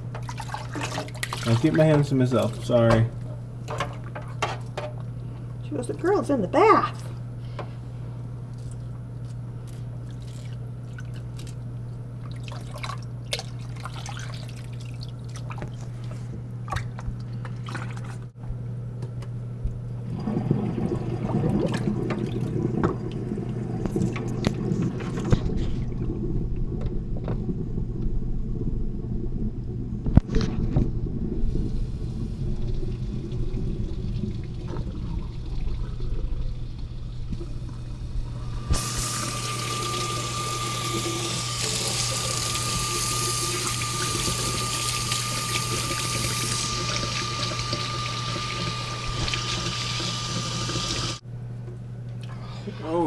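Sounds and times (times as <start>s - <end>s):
water splashing in a metal sink: 0.0s - 5.0s, 9.7s - 18.3s, 20.1s - 51.2s
tap water rushing into sink: 0.0s - 5.1s, 20.1s - 28.2s, 32.5s - 51.2s
steady low hum: 0.0s - 53.0s.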